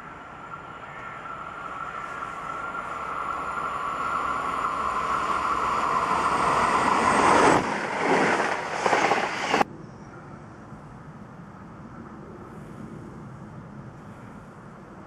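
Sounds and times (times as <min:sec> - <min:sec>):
electric train passing: 0:00.0 - 0:10.0.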